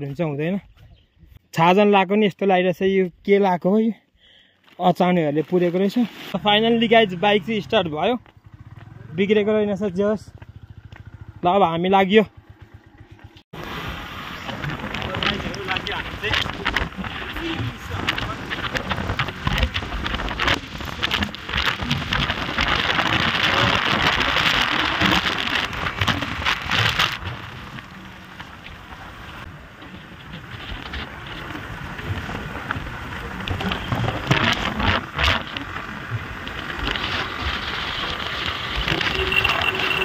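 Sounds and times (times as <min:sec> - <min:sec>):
wind buffeting the microphone: 0:14.3 - 0:40.0.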